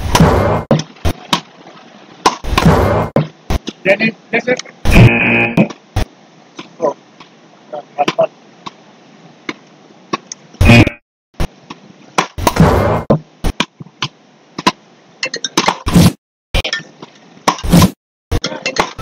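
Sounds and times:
wooden rackets striking ball: 0:00.1 - 0:01.5, 0:02.2 - 0:03.8, 0:11.7 - 0:14.8.

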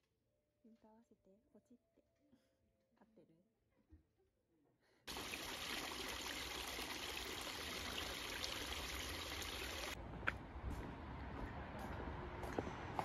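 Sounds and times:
water splashing into fountain basin: 0:05.1 - 0:10.0.

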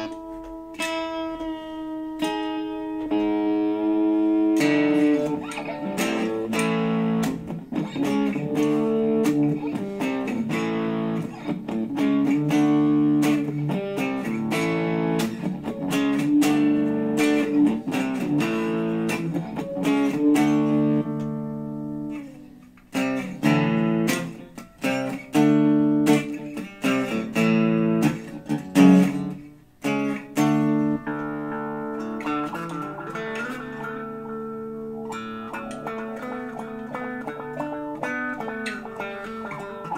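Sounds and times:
electric guitar strummed chords: 0:00.0 - 0:39.9.

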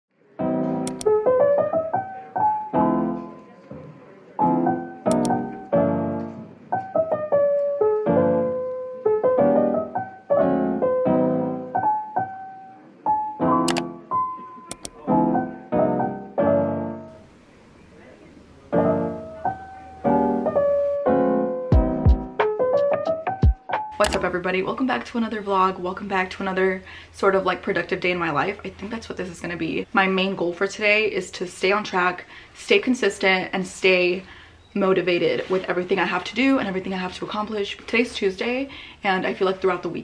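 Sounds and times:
gentle piano music: 0:00.2 - 0:17.4, 0:18.6 - 0:24.8.

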